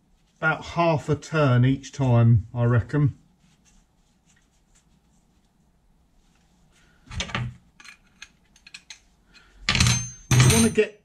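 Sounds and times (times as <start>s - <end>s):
metal tools clinking: 7.8s - 10.8s.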